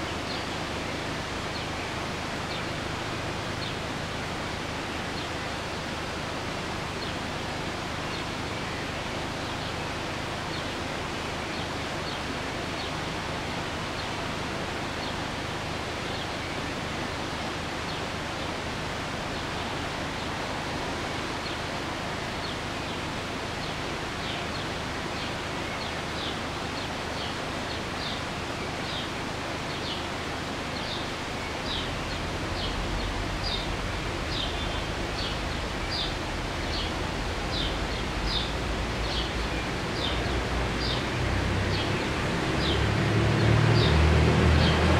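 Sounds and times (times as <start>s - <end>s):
small birds chirping: 0.0s - 42.9s
outdoor background hiss: 0.0s - 44.9s.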